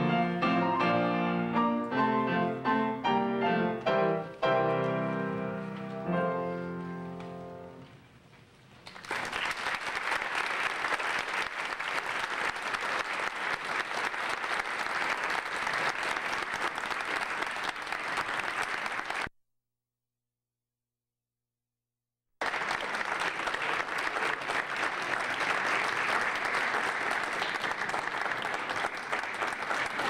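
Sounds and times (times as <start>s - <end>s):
piano chords ringing: 0.0s - 7.9s
audience applause: 8.8s - 19.3s, 22.4s - 30.0s.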